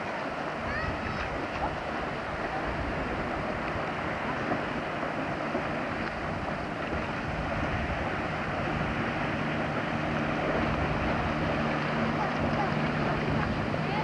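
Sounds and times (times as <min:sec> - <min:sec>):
motorboat engine drone: 0:00.0 - 0:14.0
water noise: 0:00.0 - 0:14.0
wind: 0:00.0 - 0:14.0.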